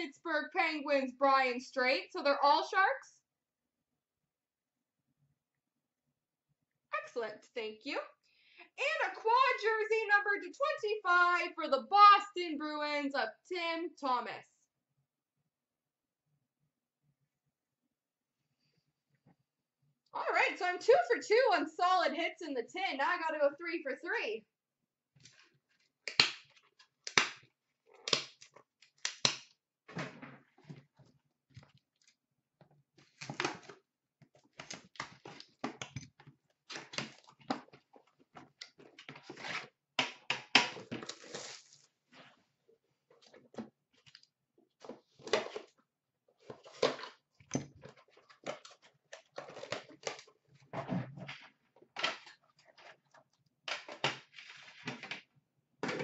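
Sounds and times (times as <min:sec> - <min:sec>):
packaging rustling and crinkling: 0:40.8 - 0:42.0.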